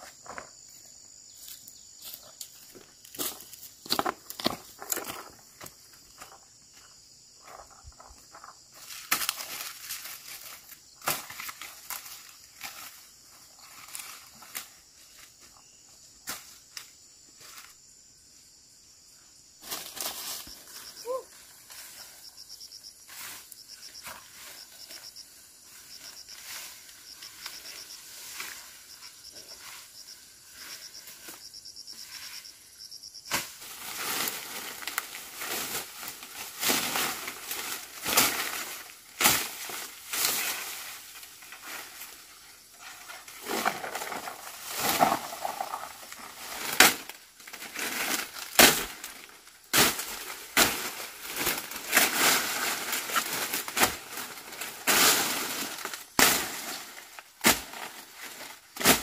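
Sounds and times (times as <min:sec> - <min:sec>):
insects chirping: 0:00.0 - 0:59.0
dry brush being trampled and cracking: 0:08.8 - 0:13.0, 0:33.3 - 0:59.0.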